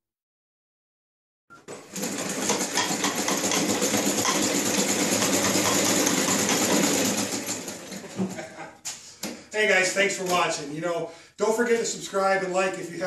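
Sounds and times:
treadle scroll saw clattering: 0:01.7 - 0:08.4.

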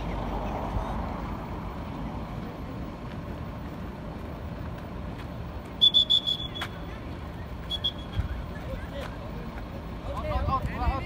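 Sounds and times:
outdoor background noise: 0:00.0 - 0:11.0
referee's whistle blasts: 0:05.8 - 0:06.8, 0:07.7 - 0:08.3.

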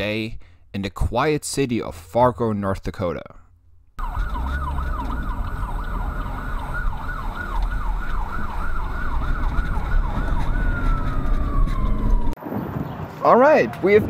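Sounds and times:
emergency vehicle siren: 0:04.0 - 0:12.4.

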